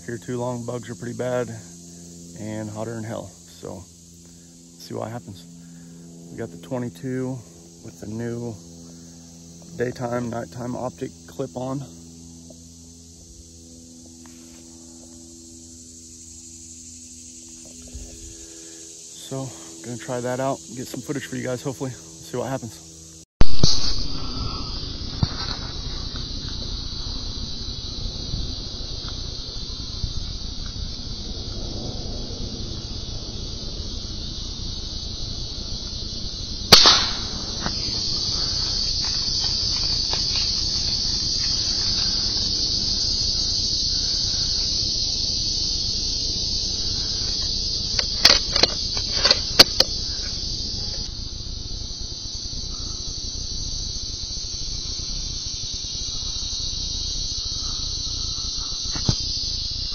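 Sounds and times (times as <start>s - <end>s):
insects droning: 0.0s - 59.9s
rifle shot: 23.4s - 24.2s, 36.7s - 37.8s.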